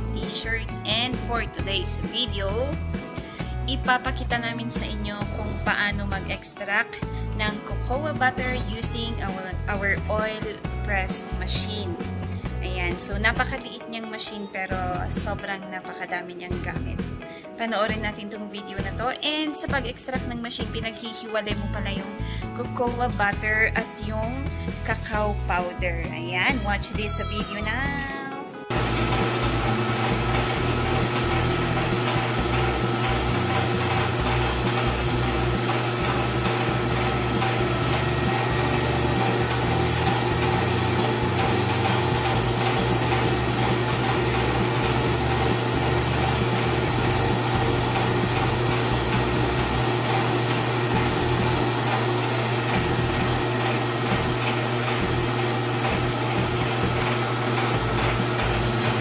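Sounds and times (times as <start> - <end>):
electric oil press motor humming: 28.7 - 59.0.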